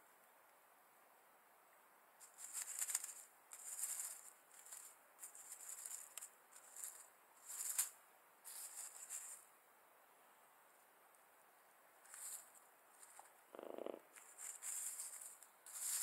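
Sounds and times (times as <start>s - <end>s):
dry reeds rustling and crackling: 2.2s - 9.5s, 12.0s - 13.3s, 14.1s - 16.0s.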